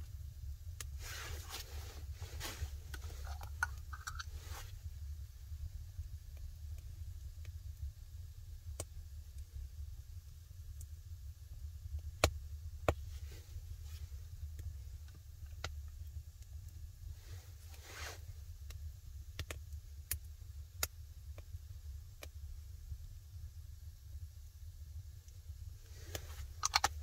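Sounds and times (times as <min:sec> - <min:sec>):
low steady rumble: 0:00.0 - 0:27.0
wood fire crackling: 0:00.0 - 0:27.0
hand rubbing seasoning into meat: 0:01.0 - 0:04.7.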